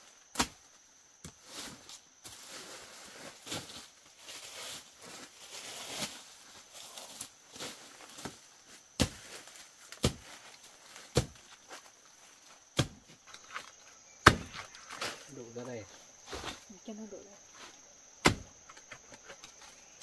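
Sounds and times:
machete chopping plant stalks: 0:00.3 - 0:01.4, 0:08.2 - 0:11.6, 0:12.7 - 0:15.3, 0:18.2 - 0:19.0
leaves and stems rustling: 0:01.0 - 0:20.0.

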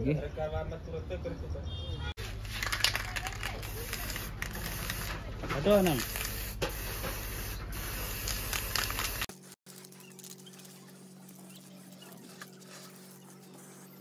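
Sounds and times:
spray-paint can hissing: 0:02.5 - 0:09.6, 0:10.5 - 0:14.0.

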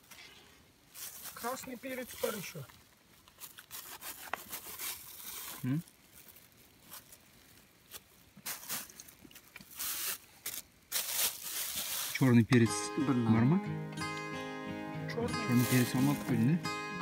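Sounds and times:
rustling and crinkling: 0:00.0 - 0:12.5, 0:15.4 - 0:16.6.

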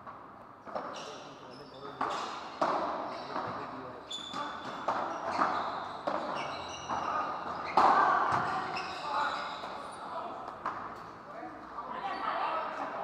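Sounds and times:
shoe squeaks: 0:00.9 - 0:02.4, 0:03.0 - 0:10.1.

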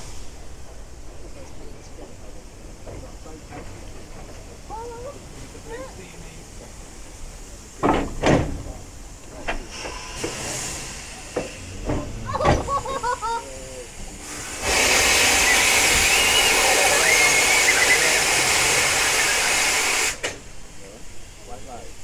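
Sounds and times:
steam locomotive hissing: 0:00.0 - 0:22.0
knocks from engine against carriage: 0:07.8 - 0:10.5, 0:11.3 - 0:12.8.

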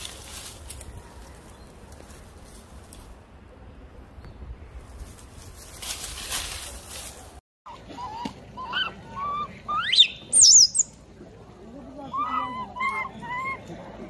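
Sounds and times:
baby monkey high cries: 0:08.0 - 0:10.8.

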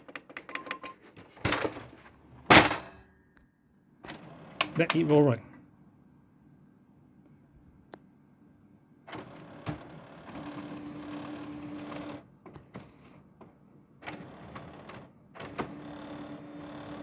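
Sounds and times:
printer motors humming: 0:04.0 - 0:05.2, 0:09.1 - 0:12.2, 0:14.0 - 0:17.0.

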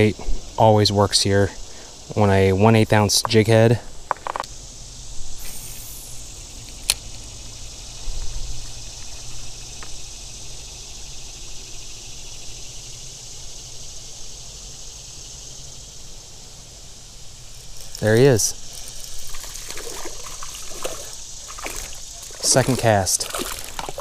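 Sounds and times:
insects droning: 0:00.0 - 0:24.0
fishing reel cranking: 0:17.6 - 0:24.0.

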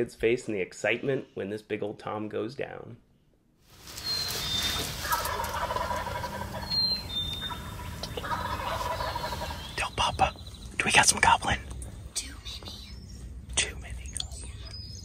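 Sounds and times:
turkey gobbling: 0:03.9 - 0:09.8
high bird whistles: 0:04.0 - 0:05.3, 0:06.6 - 0:09.8.

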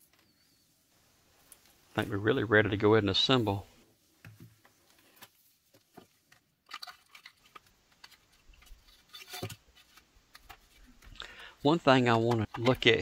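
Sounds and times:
handling clicks and rustles: 0:04.2 - 0:13.0.

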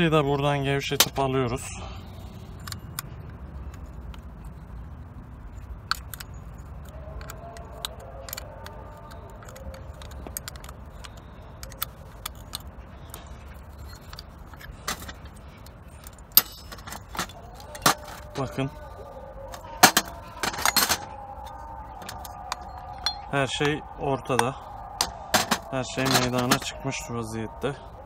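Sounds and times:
low steady hum: 0:00.0 - 0:28.0
small metal parts clinking: 0:02.2 - 0:26.8.

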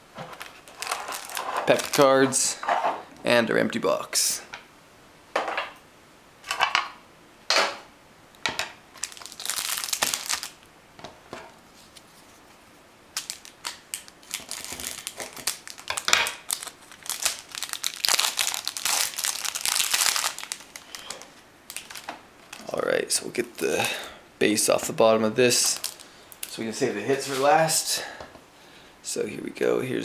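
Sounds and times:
plastic wrap crinkling: 0:00.2 - 0:02.6, 0:08.9 - 0:10.6, 0:13.2 - 0:24.0, 0:25.5 - 0:27.8
scrapes and rustles: 0:11.5 - 0:12.7.

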